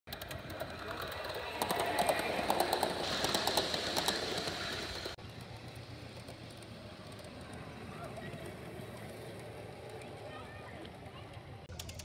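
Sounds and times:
model train wheels clicking over rail joints: 0:00.1 - 0:12.0
train high whine: 0:00.2 - 0:11.0.

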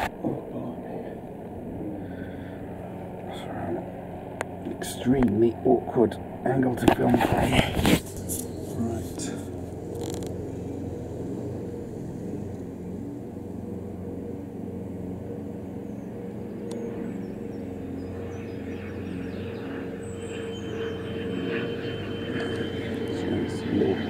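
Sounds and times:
low mechanical hum: 0:00.0 - 0:24.0.

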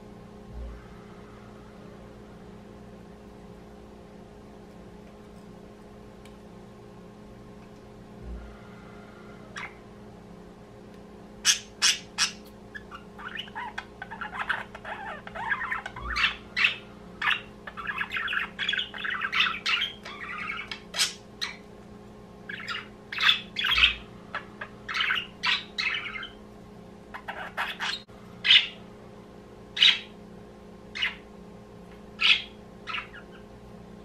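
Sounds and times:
budgerigars chattering: 0:11.4 - 0:21.6, 0:22.5 - 0:26.4, 0:27.1 - 0:28.8, 0:29.8 - 0:30.1, 0:32.2 - 0:33.4.

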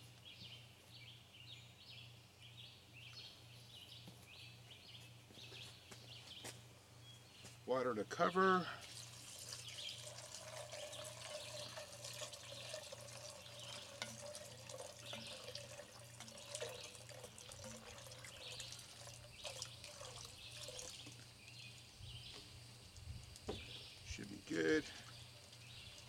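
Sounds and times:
water trickling into a pot: 0:08.6 - 0:26.0.

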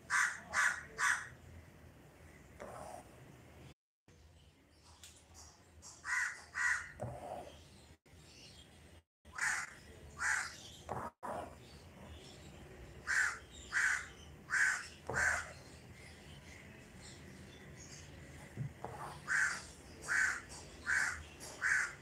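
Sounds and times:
bird calling: 0:13.0 - 0:15.6.

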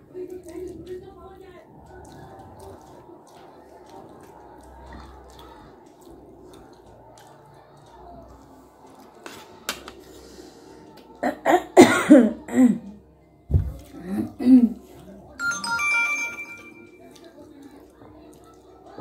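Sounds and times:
woman coughing: 0:11.2 - 0:12.9.

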